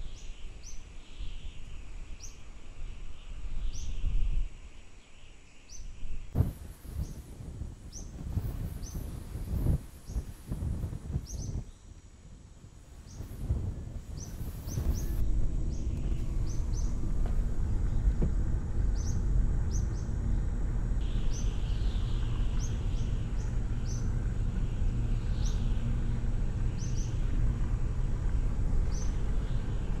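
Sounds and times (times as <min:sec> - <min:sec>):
vehicle engine and tyres rumbling: 0:06.3 - 0:30.0
high bird chirps: 0:14.1 - 0:17.0.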